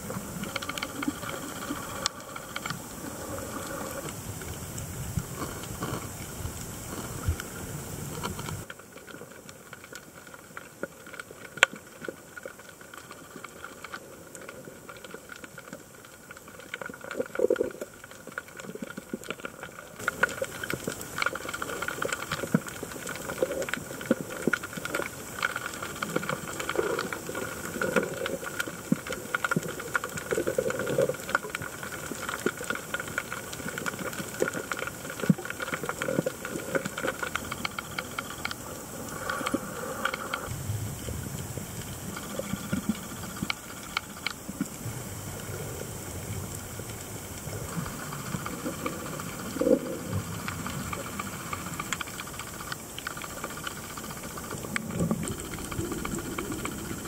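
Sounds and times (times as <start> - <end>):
bubbling: 0.0 - 57.0
dense crackle of clicks: 0.0 - 57.0
underwater hiss: 0.0 - 57.0.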